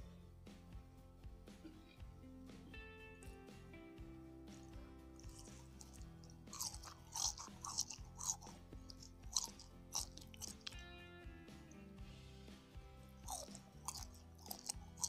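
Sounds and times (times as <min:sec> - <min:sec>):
soft background music: 0:00.0 - 0:15.0
crunchy chewing: 0:04.6 - 0:10.8, 0:13.2 - 0:15.0.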